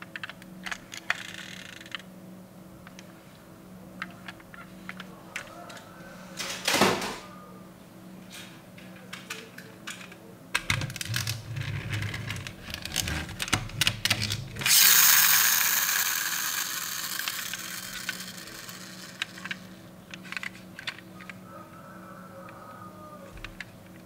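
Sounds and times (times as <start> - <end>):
toy car wheels clicking and whirring: 0.2 - 2.0, 10.7 - 21.4.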